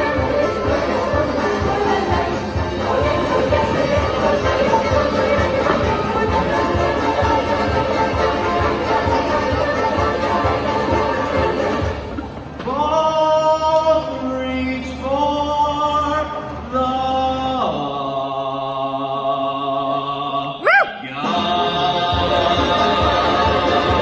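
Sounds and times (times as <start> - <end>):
band music: 0.0 - 12.3
ensemble singing held chords: 0.0 - 24.0.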